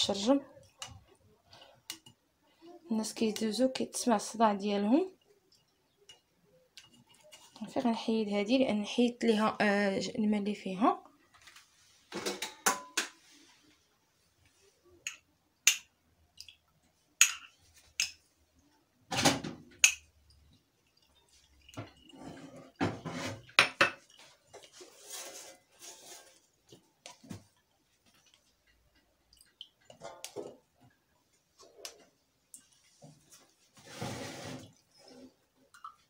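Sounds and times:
clicks and knocks of utensils: 12.1 - 13.2
metal spoon scraping strainer: 22.0 - 23.6, 24.6 - 26.4.

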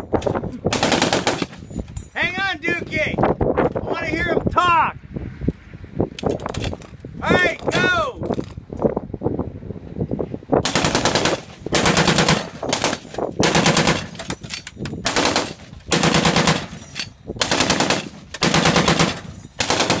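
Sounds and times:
heavy machine gun bursts: 0.7 - 1.6, 10.6 - 14.4, 15.0 - 20.0.

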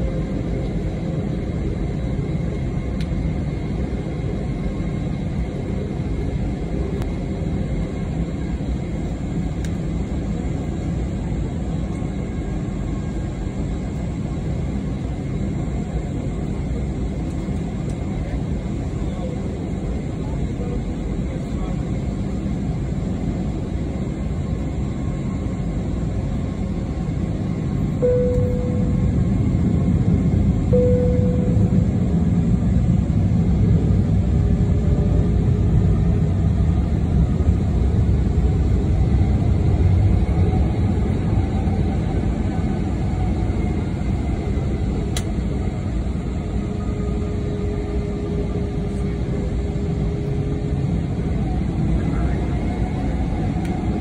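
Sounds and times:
jet engines at taxi power: 0.0 - 54.0
steady low rumble: 0.0 - 54.0
brief cabin tones: 28.0 - 29.2.

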